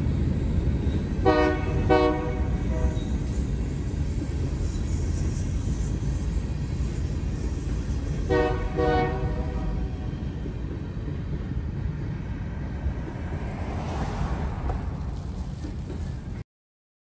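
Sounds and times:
freight train rumbling past: 0:00.0 - 0:16.4
train horn blast: 0:01.2 - 0:03.2, 0:08.2 - 0:10.1
car passing: 0:12.1 - 0:16.4.

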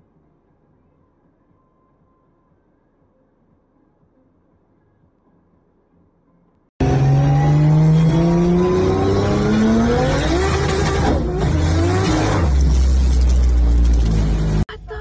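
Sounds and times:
car engine revving: 0:06.8 - 0:14.6.

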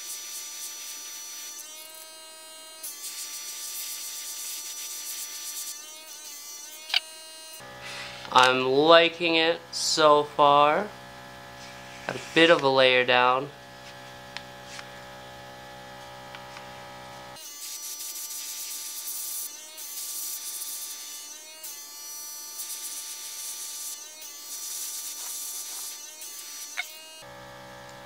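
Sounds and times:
air compressor humming: 0:06.9 - 0:17.4, 0:24.7 - 0:28.0
airbrush hissing: 0:11.5 - 0:12.6, 0:17.4 - 0:27.1.

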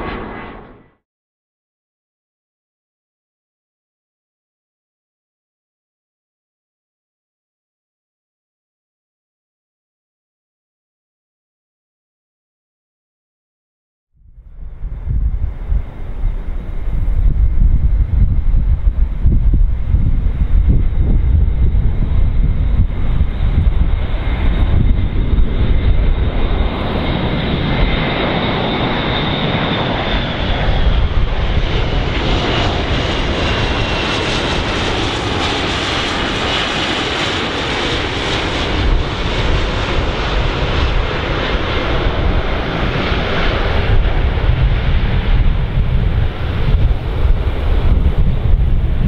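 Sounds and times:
airplane engines rumbling: 0:00.0 - 0:01.0, 0:14.2 - 0:49.0.

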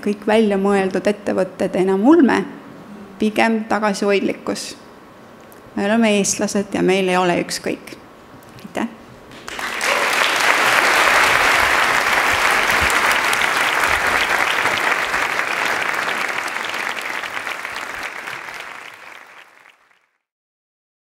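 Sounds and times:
audience applauding: 0:09.3 - 0:20.1.

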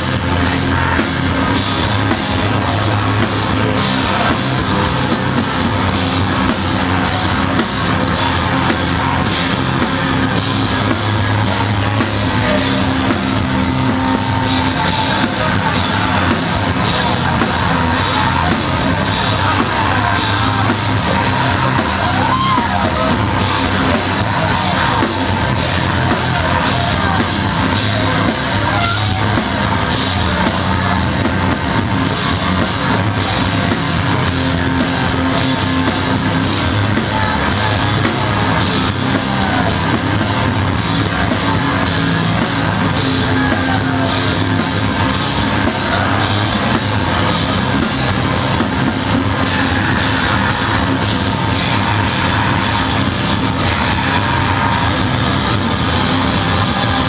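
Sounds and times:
distorted electric guitars: 0:00.0 - 0:57.0
drum kit and cymbals: 0:00.0 - 0:57.0.

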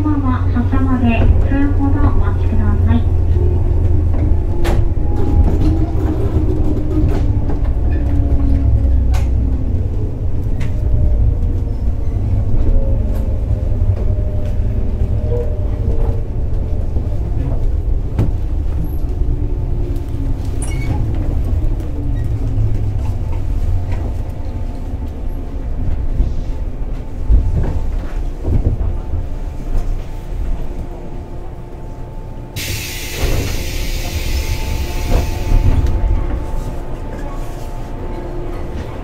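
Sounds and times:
hiss of escaping air: 0:32.6 - 0:35.6.

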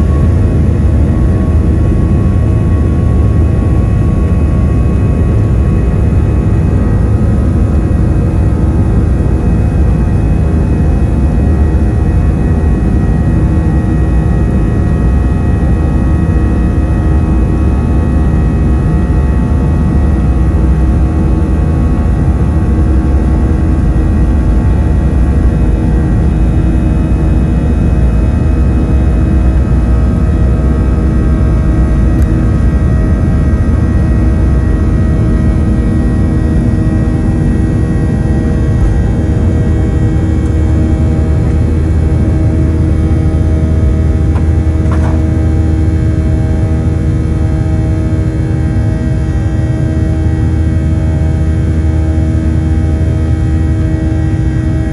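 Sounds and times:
constant engine whine: 0:00.0 - 0:54.9
jet engine cabin rumble: 0:00.0 - 0:54.9.

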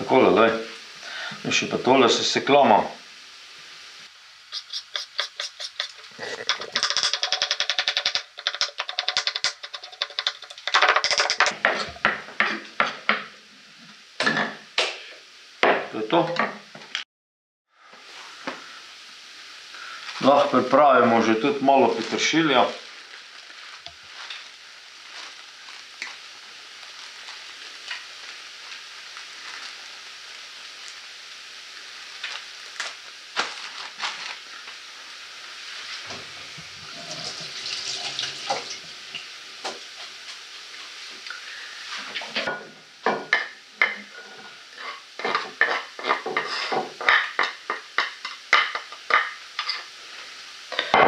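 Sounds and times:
onions sizzling in a frying pan: 0:00.0 - 0:16.9, 0:17.8 - 0:51.0.

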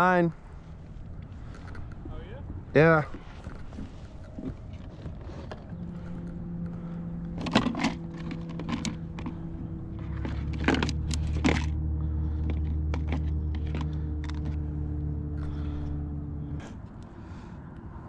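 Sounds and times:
steady low hum: 0:00.0 - 0:18.0
plastic box clicks and clatters: 0:07.4 - 0:09.4, 0:10.2 - 0:11.7.

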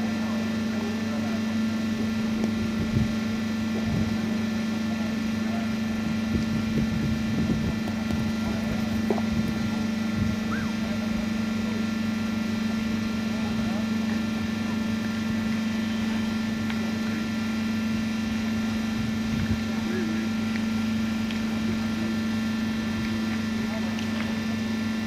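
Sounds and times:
steady mechanical hum: 0:00.0 - 0:25.0
faint voices: 0:07.4 - 0:16.2.

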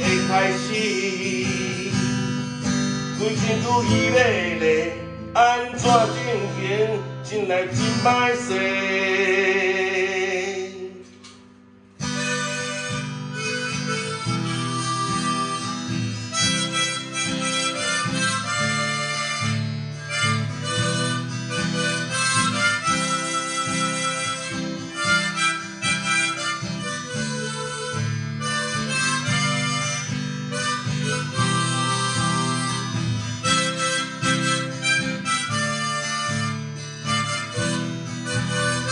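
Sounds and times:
harmonica melody: 0:00.0 - 0:11.4, 0:12.0 - 0:38.9
acoustic guitar accompaniment: 0:00.0 - 0:38.9.

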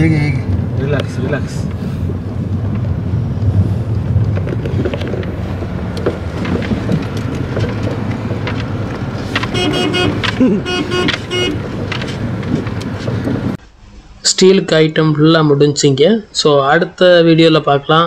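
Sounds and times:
car cabin engine and road rumble: 0:00.0 - 0:13.6
vehicle horn: 0:09.2 - 0:12.0.

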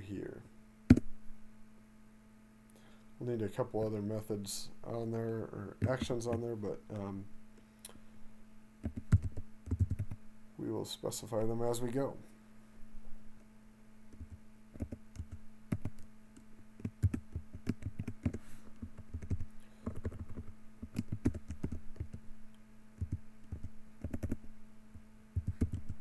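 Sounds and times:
computer keyboard typing: 0:08.8 - 0:10.2, 0:14.2 - 0:16.1, 0:16.8 - 0:22.2, 0:23.0 - 0:24.4, 0:25.4 - 0:26.0.

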